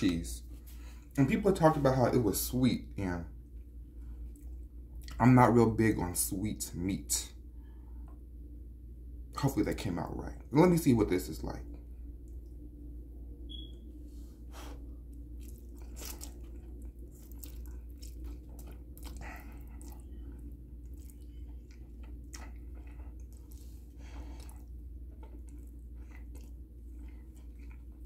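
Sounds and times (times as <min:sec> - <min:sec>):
steady low hum: 0:00.0 - 0:28.0
man chewing spaghetti: 0:14.5 - 0:28.0.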